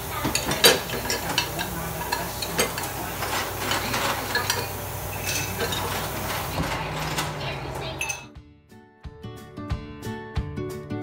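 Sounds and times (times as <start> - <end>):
running tap hiss: 0.0 - 7.9
dishes clinking and knocking: 0.0 - 8.3.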